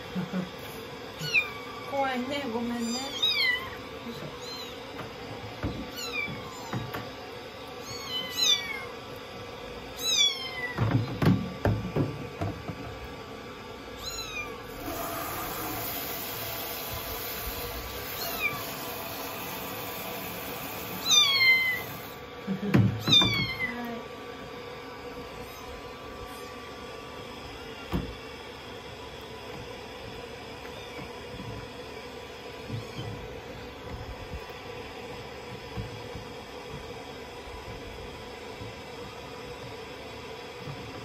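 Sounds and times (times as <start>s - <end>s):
shower head spraying water: 14.7s - 22.2s.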